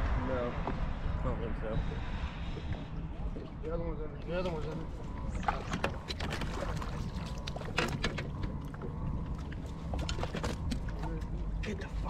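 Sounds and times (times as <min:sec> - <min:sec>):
steady low rumble: 0:00.0 - 0:12.0
water lapping against boat hull: 0:02.3 - 0:12.0.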